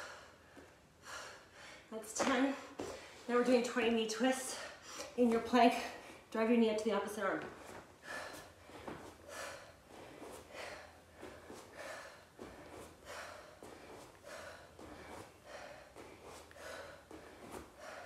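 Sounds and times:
woman breathing hard: 0.0s - 1.9s, 7.5s - 18.0s.

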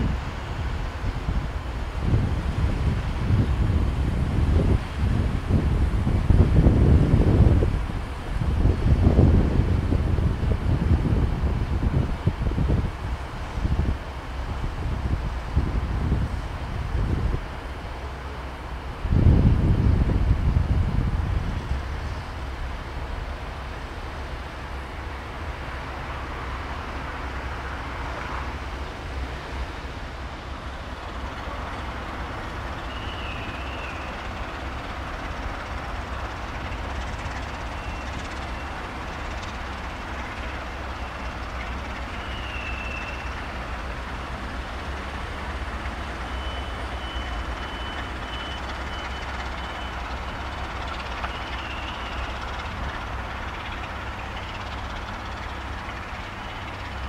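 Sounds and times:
diesel train engine rumble: 0.0s - 57.0s
faint high squeals: 46.2s - 50.0s.

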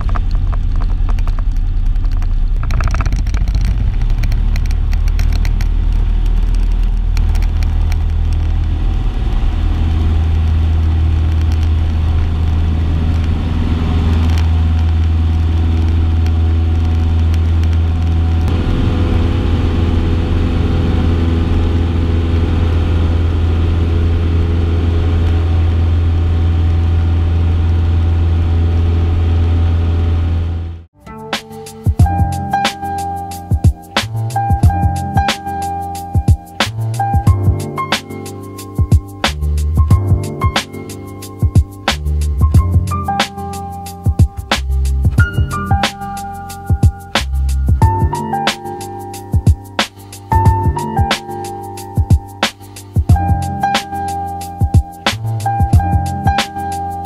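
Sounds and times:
airplane engine and propeller drone: 7.8s - 30.7s.

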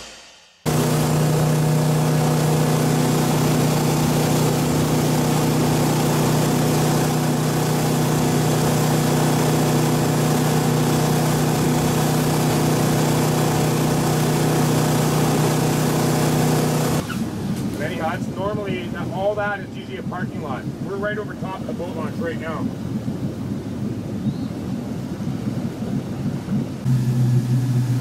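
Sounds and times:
motorboat engine droning: 0.7s - 28.0s
rushing wind and water: 16.1s - 26.9s.

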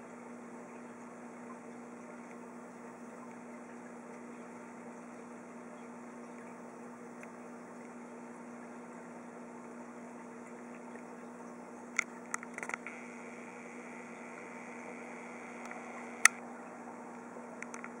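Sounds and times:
aquarium air pump humming: 0.0s - 18.0s
sharp clicks: 12.0s - 16.4s.

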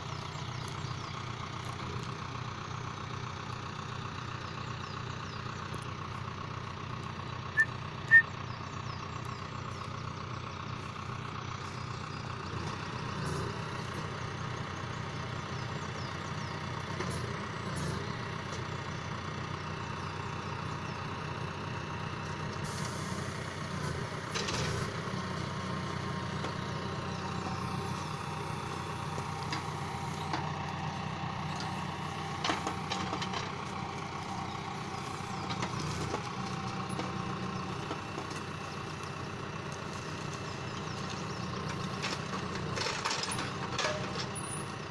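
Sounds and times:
tractor diesel engine running: 0.0s - 44.9s
short high beeps: 7.6s - 8.2s.

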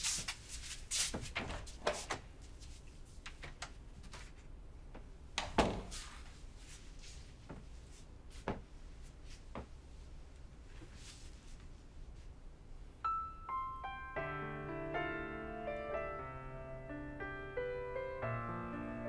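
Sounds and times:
door being handled: 1.2s - 2.3s, 5.4s - 6.0s
clothing rustling: 5.8s - 12.4s.

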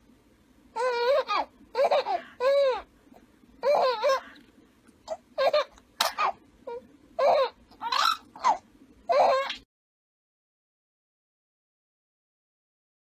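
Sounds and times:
infant giggling: 0.8s - 2.9s, 3.6s - 4.4s, 5.1s - 9.6s.

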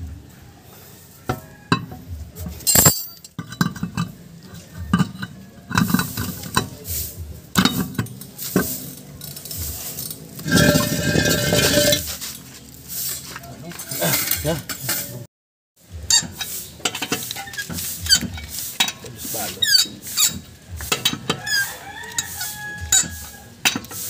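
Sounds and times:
metallic clinks and knocks: 2.6s - 4.1s
ringing metallic scrape: 7.6s - 12.4s.

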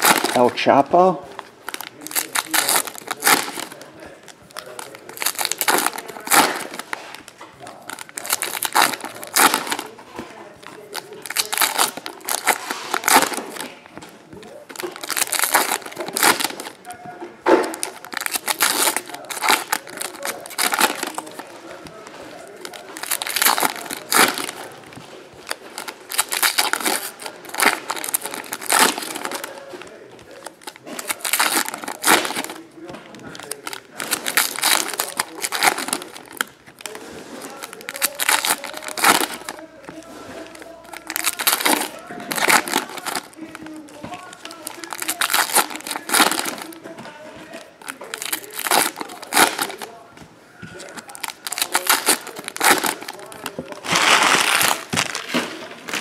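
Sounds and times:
foil wrappers crinkling and tearing: 0.0s - 50.1s, 50.7s - 56.0s.

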